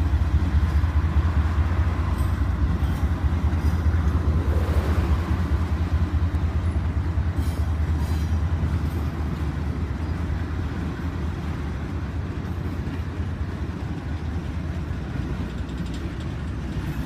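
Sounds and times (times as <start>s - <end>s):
freight train rumbling: 0.0s - 17.0s.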